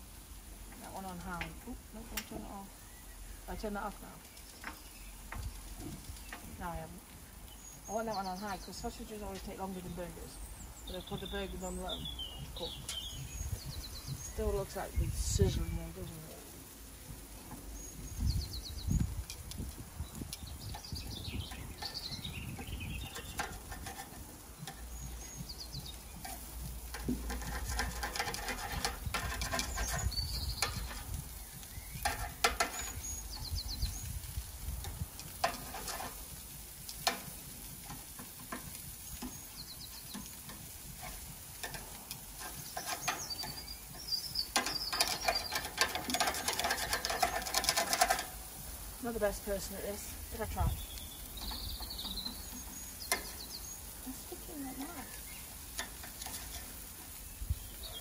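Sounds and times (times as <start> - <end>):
birds chirping: 0.0 - 58.0
meat sizzling on a grill: 0.0 - 58.0
metal tongs clicking on grate: 20.3 - 48.6, 50.8 - 53.7, 55.0 - 57.2.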